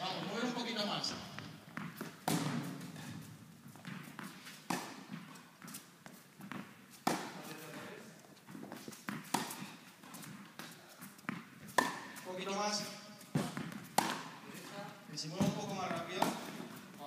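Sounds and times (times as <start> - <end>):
ball bouncing on hard court: 1.4 - 5.8, 6.4 - 7.5, 8.5 - 9.7, 11.2 - 12.3, 13.2 - 14.4, 15.3 - 16.8
tennis racket hitting ball: 1.4 - 7.6, 8.5 - 12.3, 13.2 - 14.5, 15.4 - 16.8.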